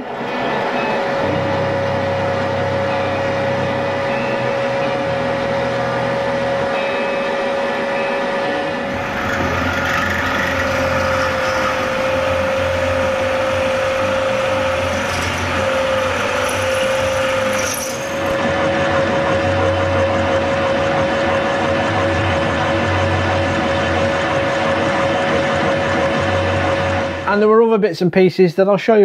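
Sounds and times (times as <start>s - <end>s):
milling machine motor whine: 0.0s - 27.4s
drill cutting steel: 8.8s - 27.3s.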